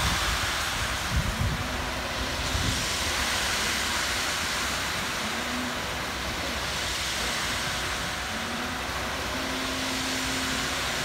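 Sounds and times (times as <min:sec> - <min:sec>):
concrete mixer truck rumbling: 0:00.0 - 0:11.0.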